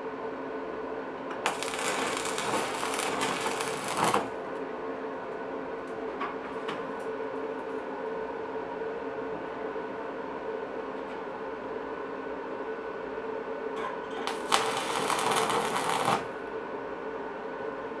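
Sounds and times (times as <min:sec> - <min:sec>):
steady hum: 0:00.0 - 0:18.0
welding arc crackling: 0:01.4 - 0:04.4, 0:14.2 - 0:16.4.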